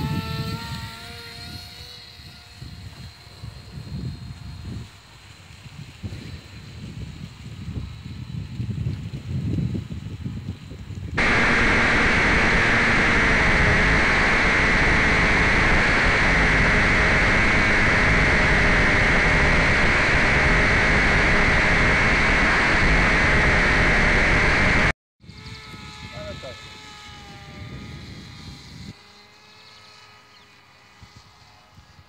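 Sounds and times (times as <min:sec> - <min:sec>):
wind on microphone: 0:00.0 - 0:29.0
loud static hiss: 0:11.2 - 0:24.9.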